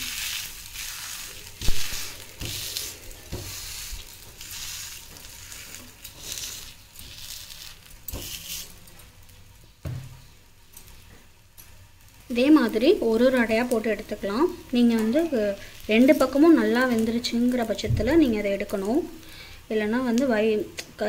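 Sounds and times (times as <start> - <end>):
batter sizzling in oil: 0.0 - 21.0.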